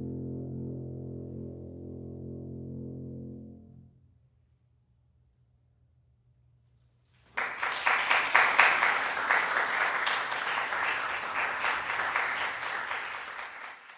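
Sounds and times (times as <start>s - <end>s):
audience applause: 7.3s - 13.9s.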